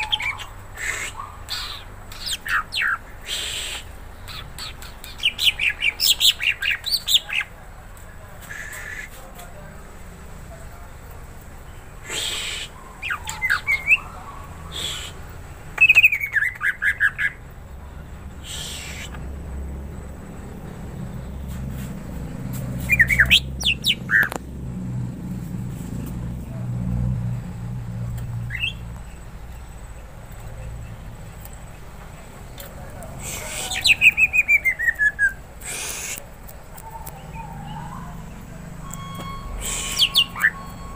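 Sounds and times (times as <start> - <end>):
rustles: 21.3 - 37.6
bird chirps and whistles: 22.8 - 24.3, 28.5 - 28.8, 39.0 - 40.9.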